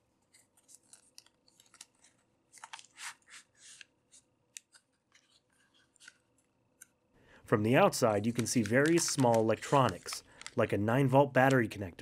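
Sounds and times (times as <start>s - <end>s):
plastic bag crinkling: 8.2s - 10.6s.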